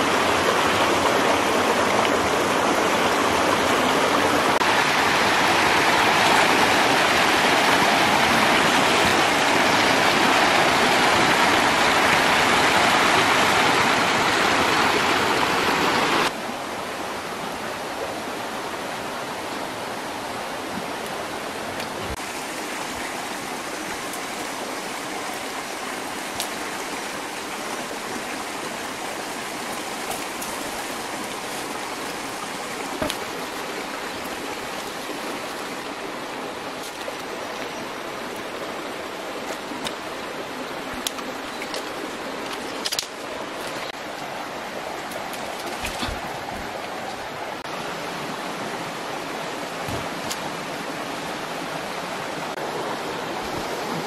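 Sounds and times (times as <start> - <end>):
stream water rushing: 0.0 - 54.0.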